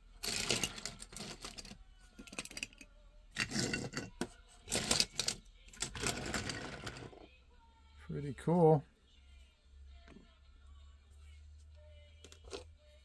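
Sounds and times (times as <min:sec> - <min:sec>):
toy cars clicking on table: 0:00.2 - 0:07.2.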